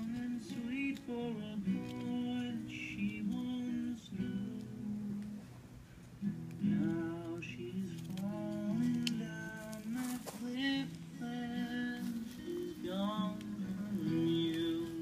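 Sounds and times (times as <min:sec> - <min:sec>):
acoustic guitar song: 0:00.0 - 0:15.0.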